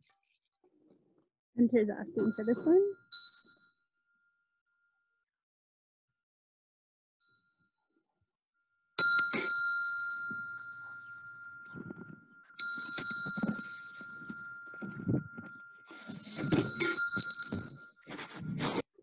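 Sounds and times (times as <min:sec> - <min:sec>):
metal hand bell ringing: 0:02.2 - 0:03.8, 0:09.0 - 0:18.6.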